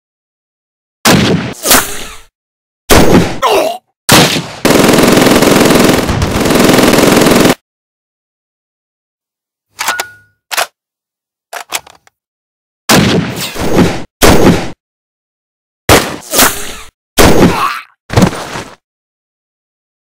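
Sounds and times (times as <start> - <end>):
single gunshots: 1.0 - 2.1, 2.9 - 3.4, 4.1 - 4.7, 12.9 - 14.8, 15.9 - 17.6
automatic gunfire burst: 4.1 - 7.6.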